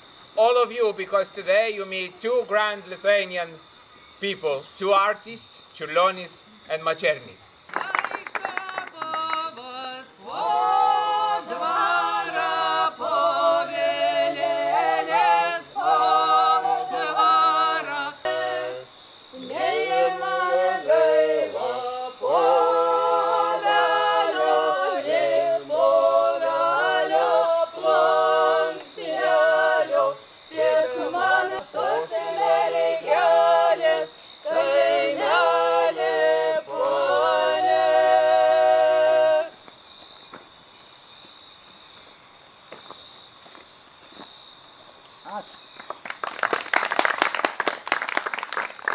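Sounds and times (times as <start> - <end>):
small group singing unaccompanied: 8.3 - 39.6.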